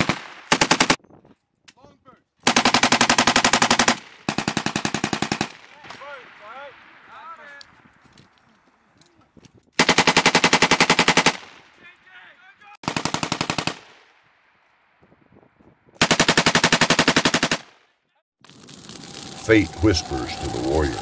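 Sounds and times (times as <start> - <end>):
machine gun firing bursts: 0.0 - 1.0, 2.4 - 5.7, 9.8 - 11.5, 12.8 - 14.0, 16.0 - 17.7.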